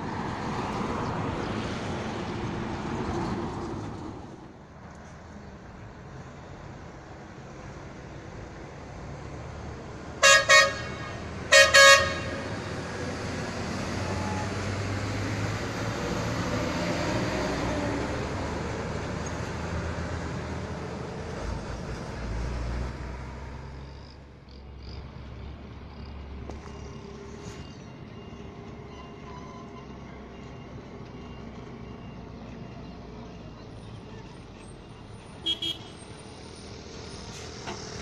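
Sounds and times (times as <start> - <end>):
tanker trucks driving past: 0.0 - 38.0
vehicle horn short blasts: 10.2 - 12.4, 35.4 - 36.0.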